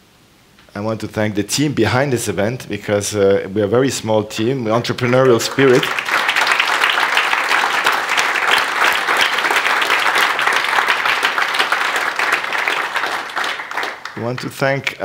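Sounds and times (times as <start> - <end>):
audience applauding: 4.8 - 15.0.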